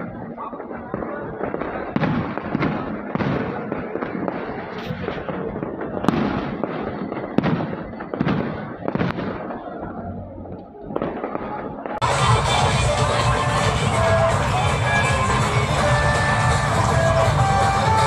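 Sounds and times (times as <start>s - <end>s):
firework bangs and pops: 0.0s - 12.1s
fireworks crackling: 0.0s - 18.0s.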